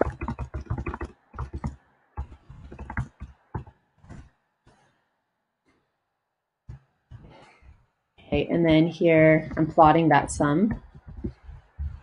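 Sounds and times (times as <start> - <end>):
computer keyboard typing: 0.0 - 4.2, 9.4 - 12.0.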